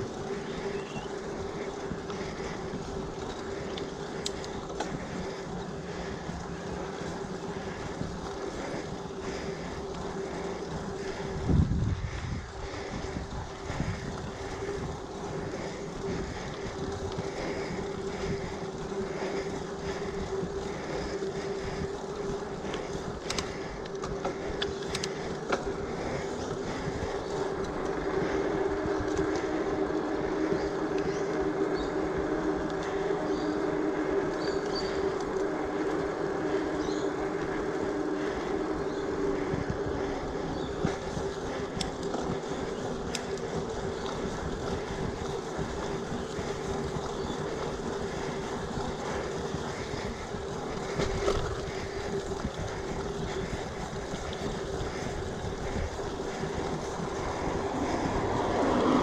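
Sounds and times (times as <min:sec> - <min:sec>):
bicycle tyre hum and rattle: 0:00.0 - 0:59.0.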